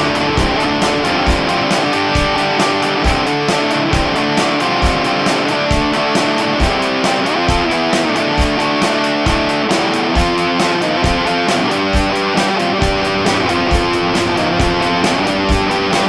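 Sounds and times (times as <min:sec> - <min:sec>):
drum beat: 0:00.0 - 0:06.0, 0:12.8 - 0:16.0
electric guitar chords: 0:00.0 - 0:16.0.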